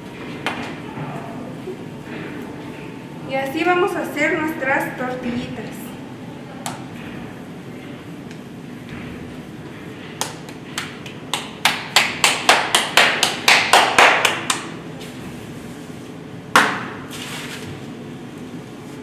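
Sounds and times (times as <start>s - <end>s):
hands slapping dough: 10.1s - 14.7s, 16.5s - 17.1s.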